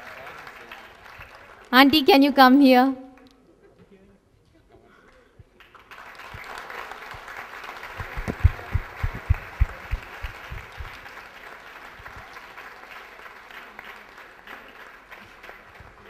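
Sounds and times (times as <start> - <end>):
audience applauding: 0.0 - 1.7, 5.6 - 16.0
low thumps: 8.0 - 11.0.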